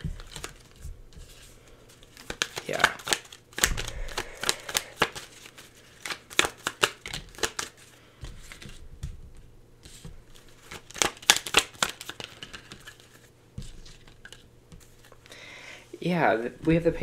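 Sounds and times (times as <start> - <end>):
cards being shuffled: 0.0 - 15.3.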